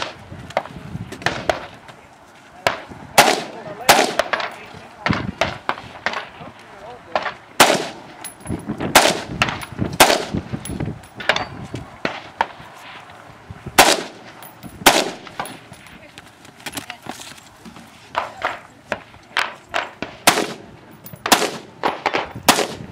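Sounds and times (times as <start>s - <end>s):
rifle gunshots: 3.2s - 4.5s, 7.2s - 8.1s, 8.9s - 10.4s, 13.8s - 15.4s, 20.0s - 22.8s.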